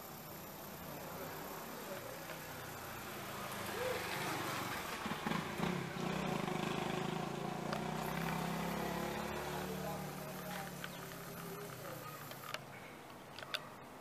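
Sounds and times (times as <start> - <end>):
vehicle engine running: 0.0 - 12.6.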